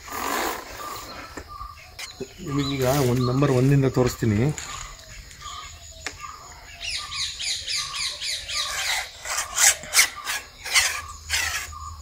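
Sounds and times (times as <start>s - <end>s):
rasping scrapes: 8.5s - 11.8s
telescopic pole sections rubbing: 8.5s - 11.9s.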